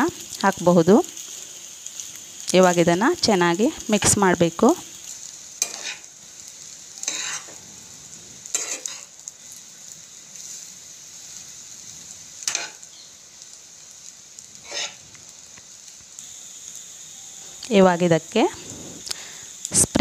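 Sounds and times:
rice sizzling in a pan: 0.0 - 20.0
spatula scraping through rice: 5.6 - 6.1, 7.0 - 7.5, 14.6 - 15.0.

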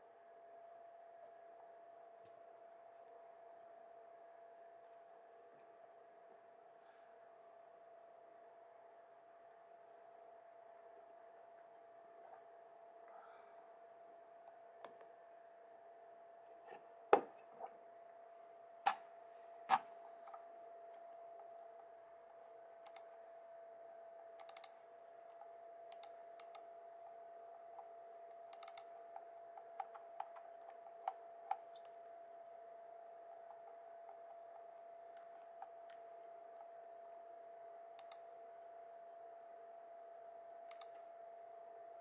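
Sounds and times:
faint steady hum: 0.0 - 42.0
mouse buttons clicking: 22.8 - 23.2, 24.4 - 24.8, 25.9 - 26.7, 28.5 - 29.0, 38.0 - 38.2, 40.7 - 41.0.

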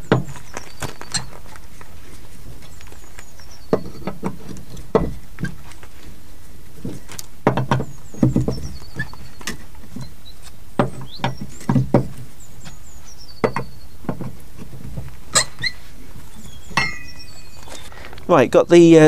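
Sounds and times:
tire spanner knocking on wheel nuts: 0.0 - 1.5, 2.6 - 5.7, 6.8 - 10.1, 10.8 - 15.8, 16.6 - 17.5
songbird singing: 0.0 - 19.0.

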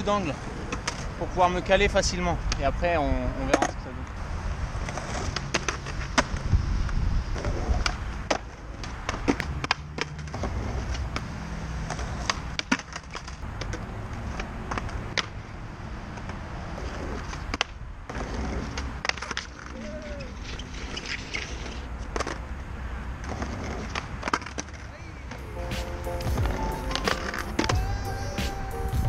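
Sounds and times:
skateboards rolling on concrete: 0.0 - 29.0
skateboard decks clacking: 23.2 - 29.0.

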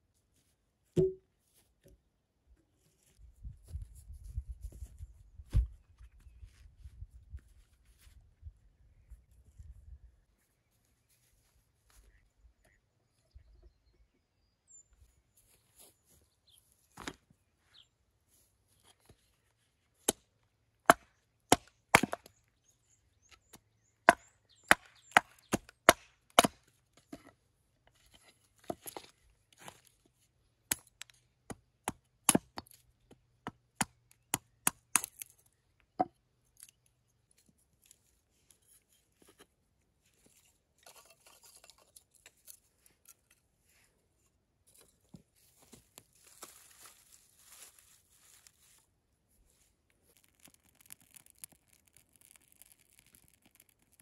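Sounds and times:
wood chopping: 1.0 - 1.2, 20.9 - 22.3, 24.1 - 26.6, 31.5 - 32.8, 33.4 - 35.3
rustling of split sticks: 36.4 - 54.0.

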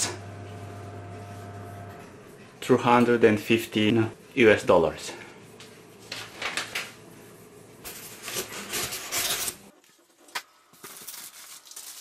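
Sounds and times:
paper packaging rustling: 6.1 - 6.9, 10.8 - 12.0.

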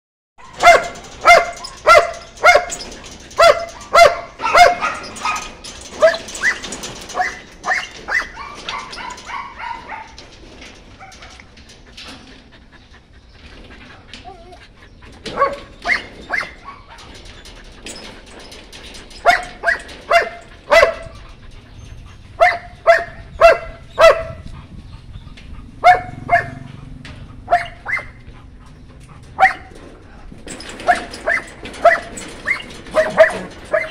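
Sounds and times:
puppy barking: 0.4 - 2.8, 3.4 - 6.2, 7.2 - 10.2, 19.3 - 21.1, 22.4 - 24.4, 25.8 - 26.7, 27.4 - 28.2, 29.4 - 29.7, 33.0 - 33.9.

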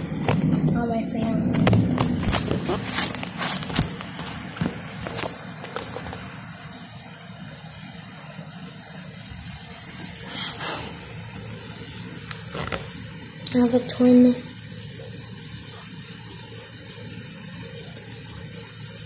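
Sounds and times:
heavy rain pouring: 0.0 - 19.0.

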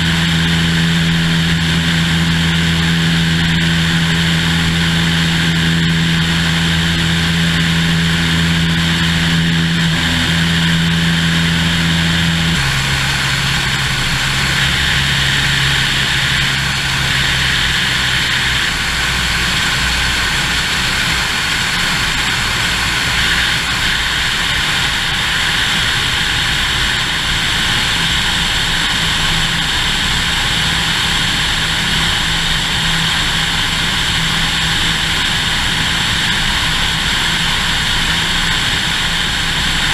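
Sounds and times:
propeller airplane engine droning: 0.0 - 39.9.

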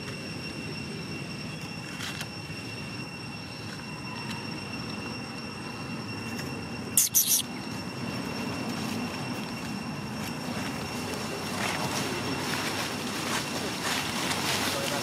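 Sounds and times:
high-pitched drone: 0.0 - 15.0
shrill squeak: 3.0 - 7.9.

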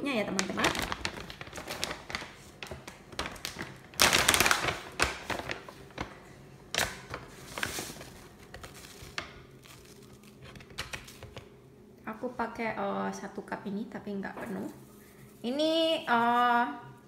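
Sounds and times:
plastic bag rustling: 0.2 - 11.5, 14.4 - 16.6.

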